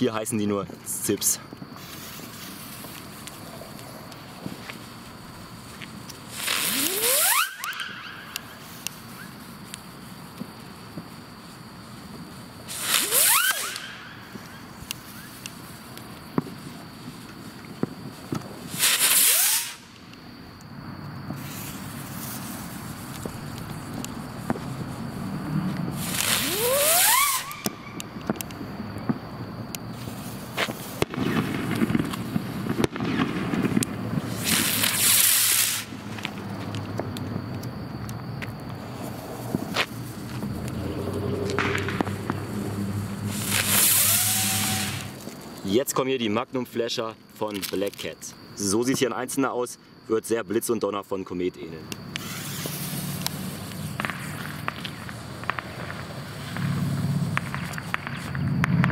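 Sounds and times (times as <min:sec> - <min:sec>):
firework cracks: 0:00.9 - 0:20.4, 0:21.2 - 0:45.7, 0:52.0 - 0:58.9
firework hissing: 0:00.9 - 0:20.5, 0:21.2 - 0:45.7, 0:52.0 - 0:58.9
whistling rocket launch: 0:06.3 - 0:09.4, 0:12.7 - 0:15.4, 0:18.7 - 0:20.0, 0:25.9 - 0:28.4, 0:30.8 - 0:36.1, 0:40.4 - 0:45.2, 0:52.1 - 0:58.9.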